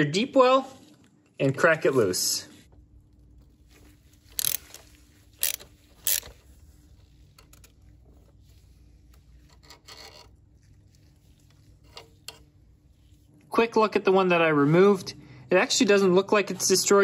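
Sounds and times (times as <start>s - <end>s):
hand ratchet clicking: 4.3s - 6.4s.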